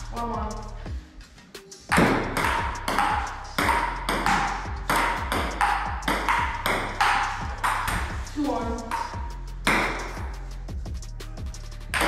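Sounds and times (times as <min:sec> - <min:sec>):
table tennis ball pinging: 0:01.9 - 0:10.3.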